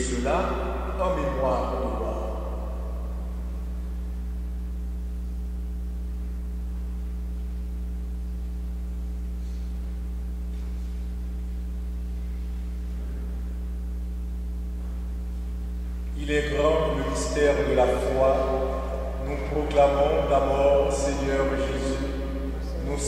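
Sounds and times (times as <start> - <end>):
electrical mains hum: 0.0 - 23.0.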